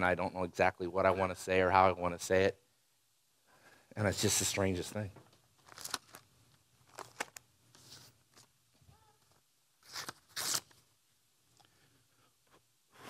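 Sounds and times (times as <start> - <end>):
paper rustling and crinkling: 5.6 - 8.5.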